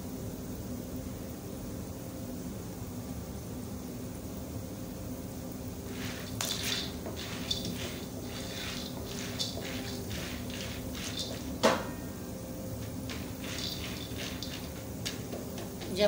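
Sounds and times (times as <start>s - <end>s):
steady hum: 5.4s - 16.0s
wooden spoon scraping wok: 5.8s - 11.8s, 12.8s - 15.9s
popcorn popping: 5.9s - 12.1s, 12.8s - 16.0s.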